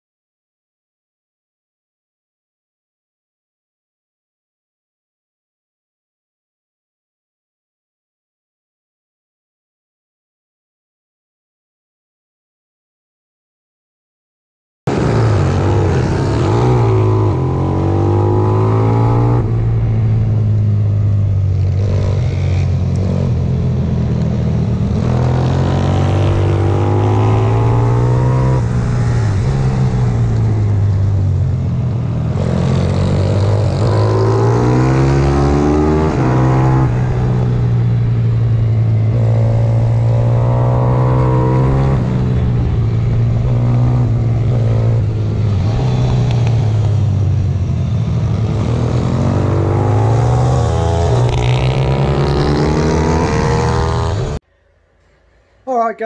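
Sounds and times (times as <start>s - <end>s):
motorbike engine revving: 14.9s - 54.4s.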